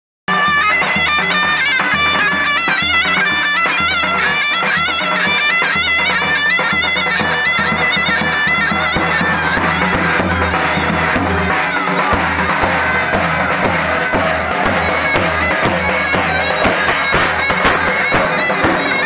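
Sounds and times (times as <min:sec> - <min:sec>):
shawm playing folk dance melody: 0:00.3 - 0:19.0
bass drum beat: 0:07.9 - 0:19.0.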